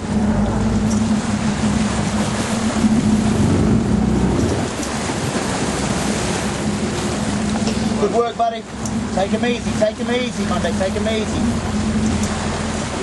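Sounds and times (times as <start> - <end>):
wind on microphone: 0.0 - 8.0
boat engine humming: 0.0 - 13.0
water washing along hull: 0.0 - 13.0.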